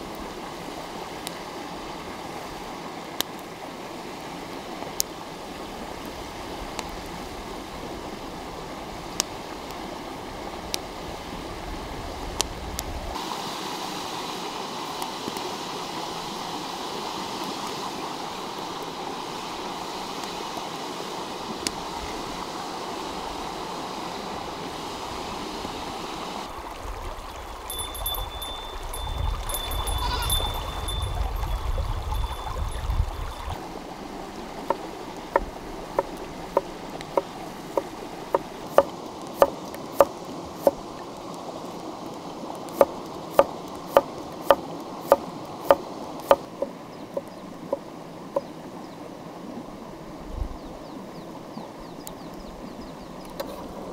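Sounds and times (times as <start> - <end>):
stream running: 0.0 - 53.9
thin high steady tone: 27.4 - 33.6.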